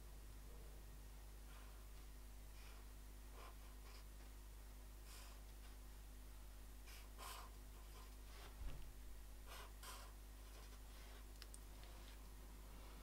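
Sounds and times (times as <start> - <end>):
marker pen scratching on paper: 9.4 - 11.3.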